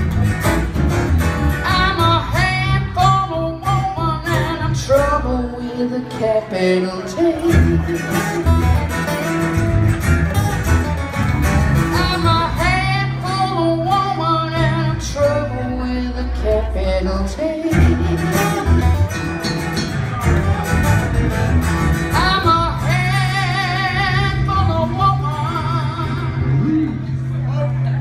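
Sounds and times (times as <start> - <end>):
bass guitar: 0.0 - 28.0
strummed acoustic guitars: 0.0 - 28.0
woman singing: 1.6 - 7.9, 11.9 - 18.3, 22.1 - 26.4.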